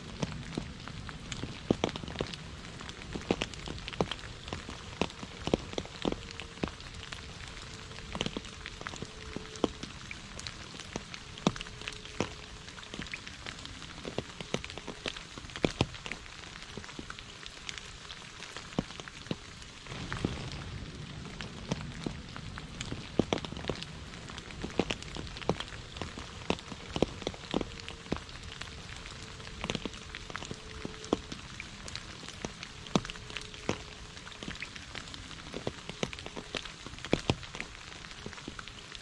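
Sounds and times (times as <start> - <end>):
rain pattering on puddles and leaves: 0.0 - 39.0
raindrops splatting: 0.0 - 39.0.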